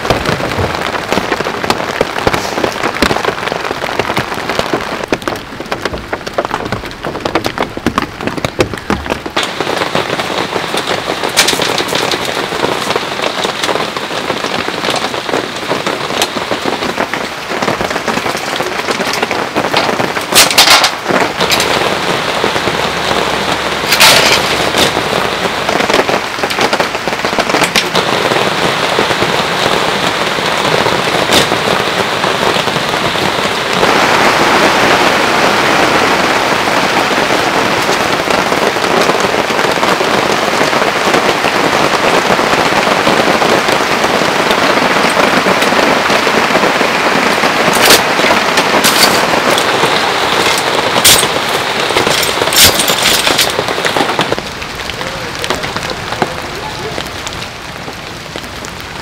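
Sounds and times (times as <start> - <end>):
heavy rain falling: 0.0 - 59.0
metal camp table clattering: 6.4 - 12.9, 18.1 - 22.0, 23.8 - 25.2, 26.5 - 28.1, 47.3 - 54.3.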